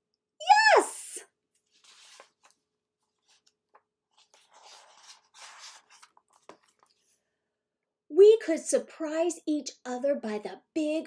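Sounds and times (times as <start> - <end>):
book page rustling: 1.6 - 7.2.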